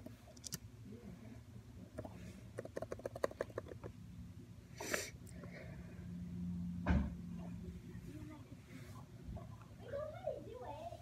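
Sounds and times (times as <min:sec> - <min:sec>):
computer keyboard typing: 0:00.3 - 0:00.6, 0:02.6 - 0:03.9.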